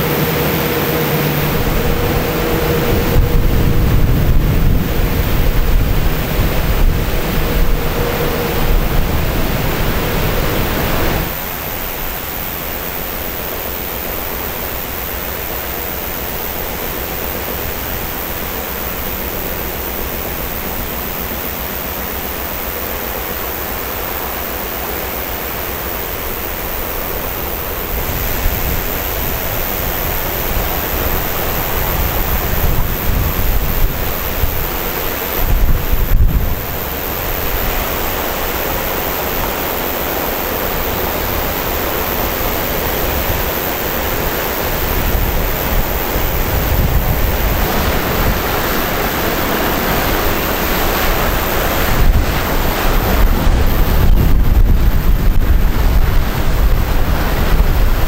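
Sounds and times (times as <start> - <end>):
wind buffeting microphone: 0.0 - 11.5, 27.1 - 58.0
rushing outdoor noise: 0.0 - 58.0.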